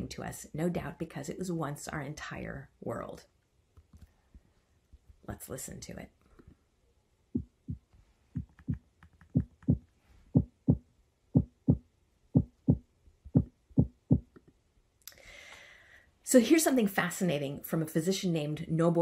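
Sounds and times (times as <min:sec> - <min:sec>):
heartbeat: 0:07.3 - 0:14.4.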